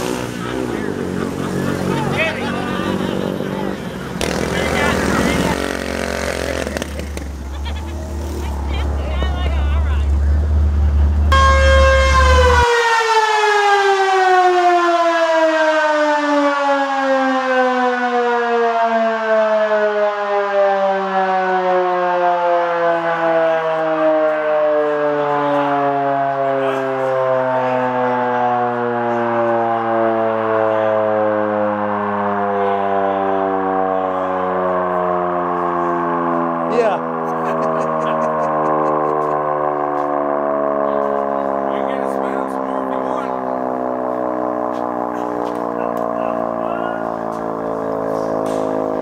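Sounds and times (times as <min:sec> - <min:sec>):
mechanical siren winding down: 0:11.3 - 0:49.0.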